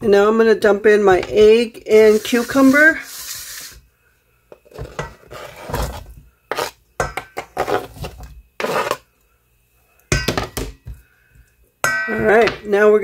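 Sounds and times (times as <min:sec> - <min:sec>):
knife scraping cutting board: 0:05.2 - 0:06.8, 0:07.5 - 0:09.0.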